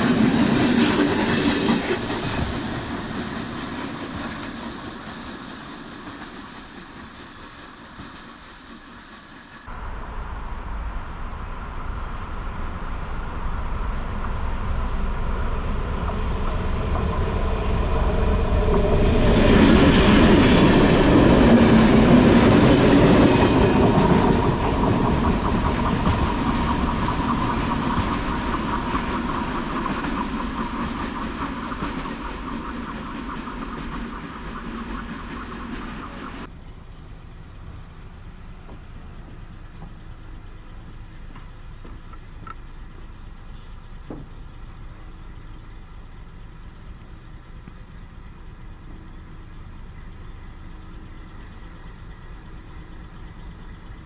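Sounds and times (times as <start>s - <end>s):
wheels clacking over rails: 0.0s - 9.7s, 18.2s - 37.0s
diesel locomotive passing: 0.0s - 54.0s.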